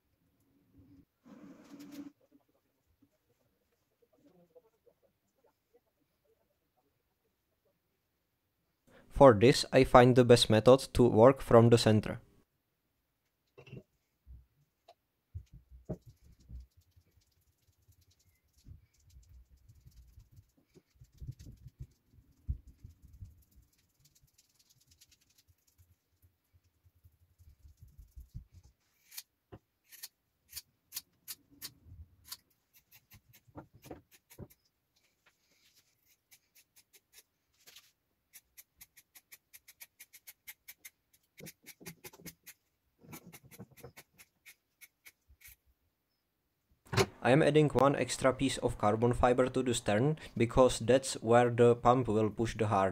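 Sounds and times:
paintbrush dabbing wet cloth: 0:15.4 - 0:29.0
scissors snipping fabric: 0:29.0 - 0:34.5.

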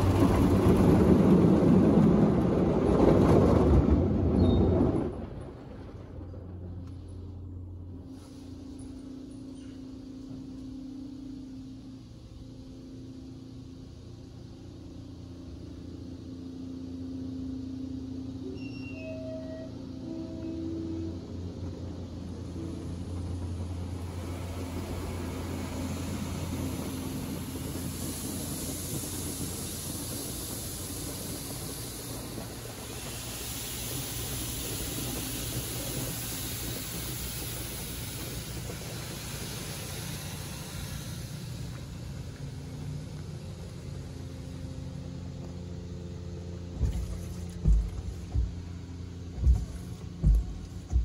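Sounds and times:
car wash hiss: 0:00.0 - 0:03.1, 0:06.8 - 0:51.0
car wash low hum: 0:00.0 - 0:51.0
heavy low thumps: 0:46.7 - 0:51.0.

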